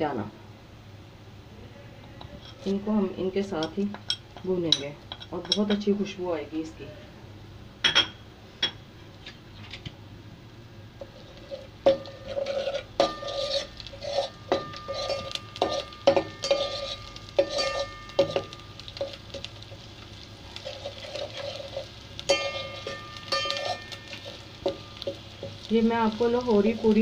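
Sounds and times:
metal spoon scraping steel pot: 2.1 - 2.8, 11.1 - 18.4, 20.6 - 25.5
spoon clinking on ringing pot: 13.0 - 18.7, 22.3 - 25.2.

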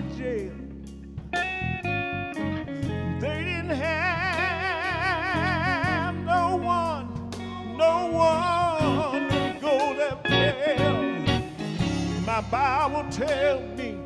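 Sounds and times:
man singing with vibrato: 0.0 - 0.8, 2.9 - 14.0
bass notes: 0.0 - 14.0
live band: 0.0 - 14.0
drum and cymbal hits: 11.6 - 13.4.

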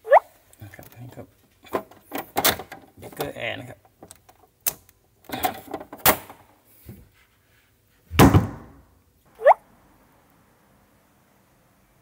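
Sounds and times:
plastic cover thud: 8.1 - 8.8.

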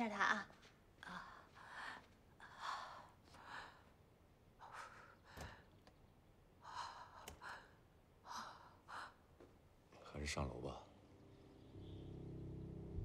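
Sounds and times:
faint clicks: 6.8 - 7.7.

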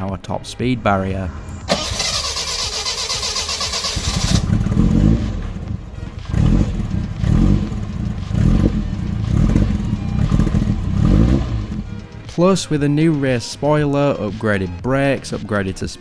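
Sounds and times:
car engine revving: 1.4 - 12.3.

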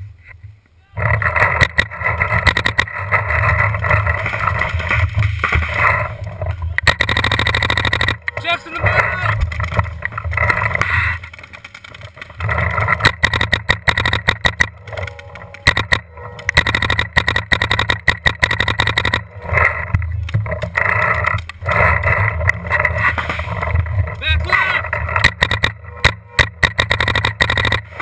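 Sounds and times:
paintball markers firing: 6.8 - 22.0, 24.6 - 28.0.

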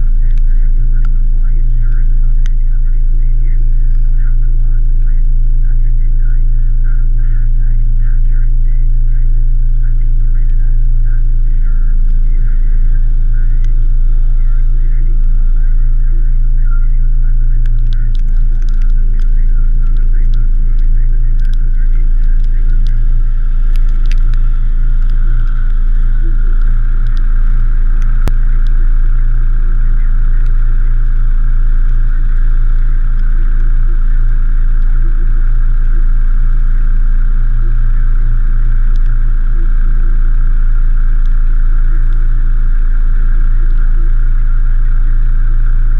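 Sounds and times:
diesel engine idling: 0.0 - 45.9.

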